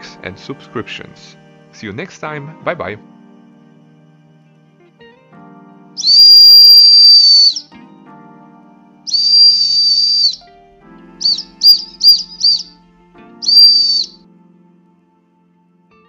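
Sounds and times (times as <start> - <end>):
shrill steel whistle blasts: 6.0 - 7.7, 9.1 - 10.5, 11.2 - 12.7, 13.4 - 14.2.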